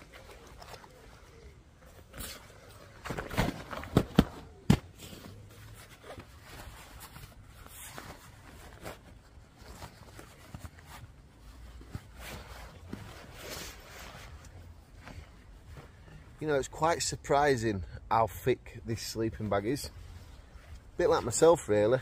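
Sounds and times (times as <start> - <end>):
sleeping bag rustling: 0.0 - 16.4.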